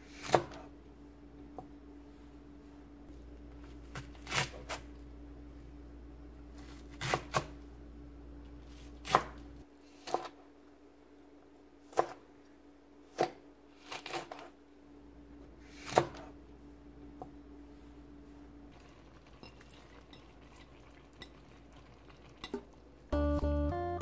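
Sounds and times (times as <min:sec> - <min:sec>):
knife chopping on cutting board: 0:00.2 - 0:00.6, 0:06.6 - 0:07.6, 0:08.7 - 0:09.4, 0:10.0 - 0:10.4, 0:11.9 - 0:12.2, 0:13.1 - 0:14.5, 0:15.8 - 0:16.3.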